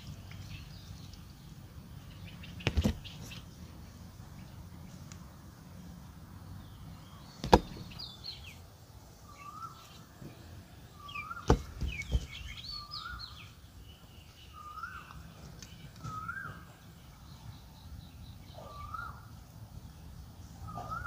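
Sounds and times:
bird whistling: 9.3 - 9.8, 14.5 - 15.1, 16.0 - 16.6, 18.6 - 19.2, 20.6 - 21.0.

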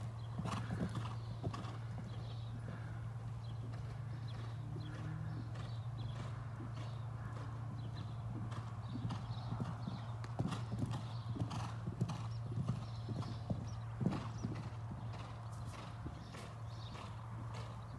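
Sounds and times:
horse hoofbeats on sand: 0.0 - 17.9
steady low hum: 0.0 - 17.9.

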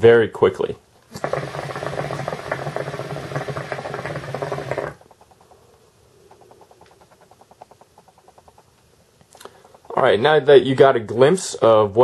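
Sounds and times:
hookah water bubbling: 1.1 - 8.7
faint quick ticking: 5.0 - 10.0.

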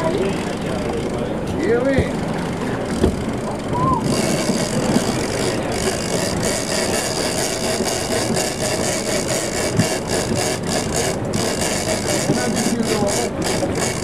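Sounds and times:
boat engine running: 0.0 - 14.0.

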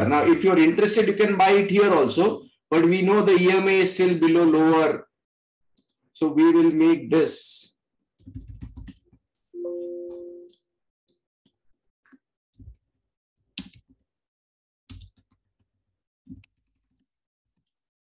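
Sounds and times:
computer keyboard keystrokes: 8.2 - 9.2, 13.6 - 13.9, 14.9 - 15.5
brief steady tone: 9.6 - 10.5.

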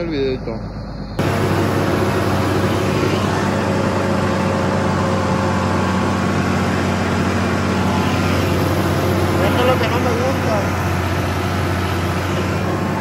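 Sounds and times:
tractor diesel engine: 0.0 - 13.0
rushing noise: 0.9 - 13.0.

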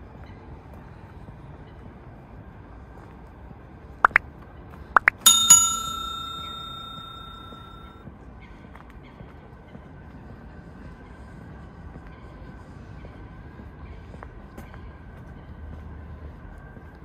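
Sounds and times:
short high chirps: 5.0 - 7.9
bicycle bell ringing: 5.1 - 8.0.

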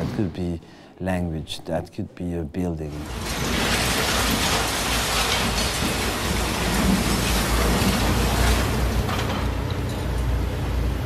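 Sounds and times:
concrete breaking and rubble falling: 3.0 - 10.0.

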